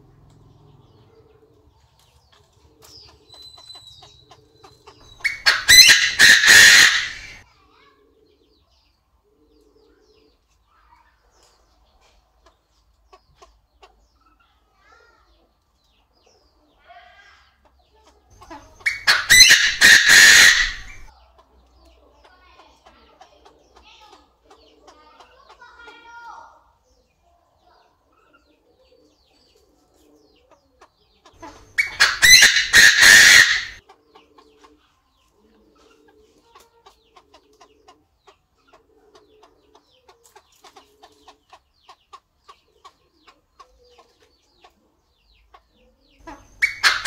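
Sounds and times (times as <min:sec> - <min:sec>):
bird calling harsh rapid notes: 0:05.0 - 0:07.4, 0:18.8 - 0:21.1, 0:31.5 - 0:33.8, 0:46.6 - 0:47.0.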